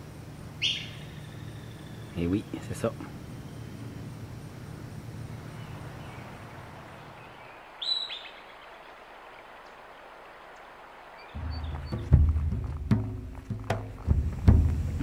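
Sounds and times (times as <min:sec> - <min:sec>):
low steady hum: 0:00.0 - 0:15.0
groundhog whistle call: 0:00.6 - 0:02.2.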